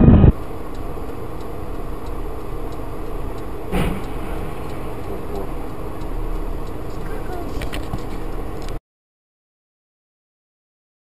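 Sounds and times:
vehicle road and engine noise: 0.0 - 8.8
short thump: 3.7 - 4.6.

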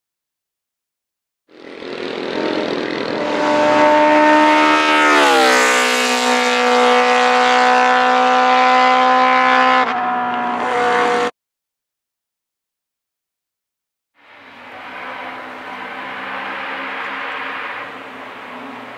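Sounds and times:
racing motorcycle passing at high revs: 1.5 - 11.3, 14.6 - 18.9.

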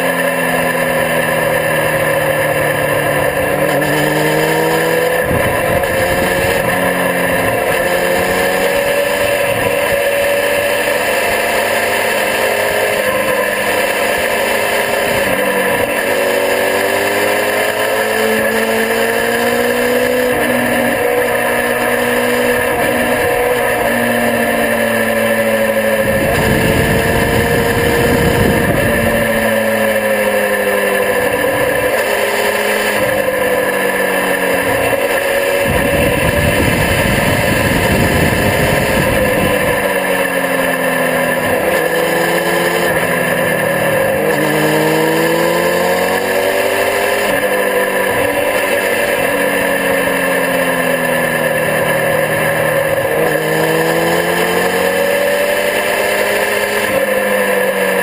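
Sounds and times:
motorcycle engine revving: 0.0 - 58.0
wind rush: 5.2 - 6.7, 26.0 - 29.4, 35.5 - 39.8
wind buffeting rumble: 26.0 - 29.2, 35.6 - 39.8.

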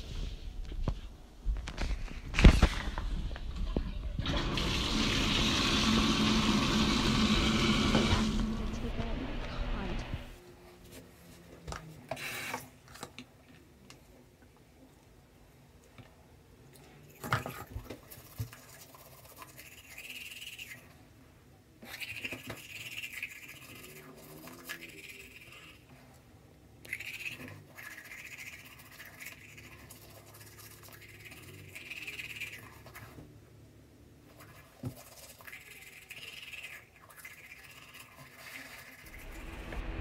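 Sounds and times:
toothbrush scrubbing teeth: 17.1 - 21.0, 21.8 - 25.9, 26.8 - 33.2, 34.3 - 39.2.

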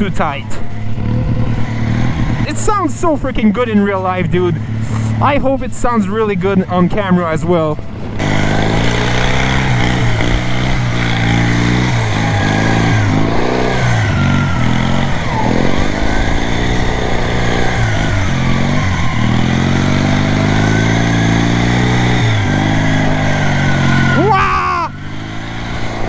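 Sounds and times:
lawn mower engine revving: 0.8 - 3.2, 8.0 - 26.0.

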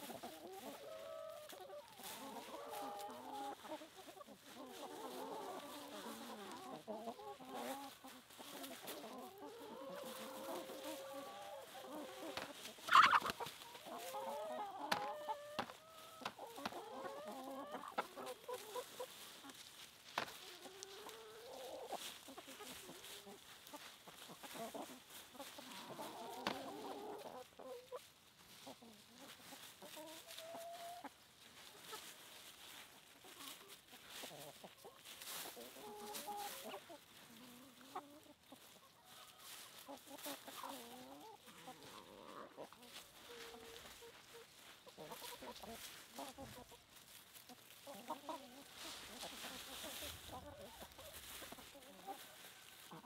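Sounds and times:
chickens clucking: 0.0 - 53.0
short chicken calls: 4.8 - 19.6.

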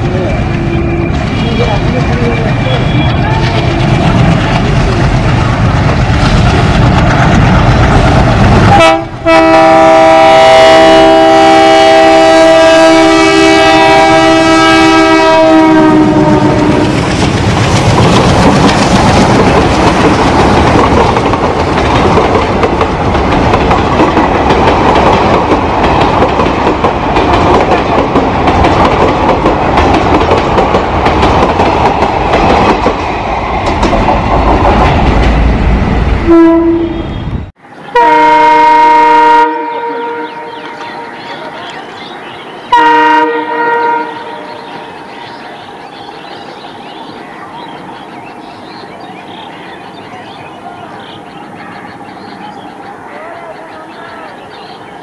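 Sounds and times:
wheel clatter over rail joints: 0.0 - 8.6
diesel locomotive rumbling: 0.0 - 55.0
multi-tone train horn blast: 8.7 - 17.0, 36.2 - 41.1, 42.7 - 44.8.

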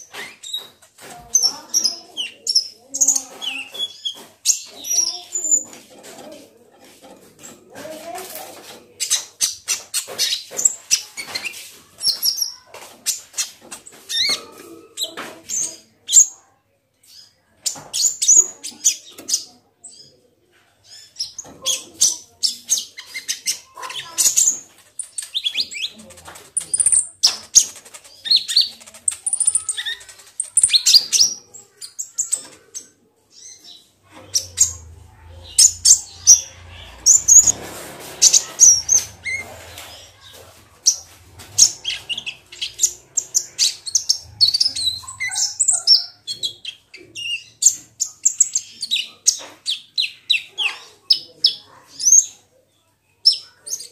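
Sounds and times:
bird chirping and twittering: 0.0 - 16.4, 17.0 - 53.9
wing flutters: 35.6 - 43.0.

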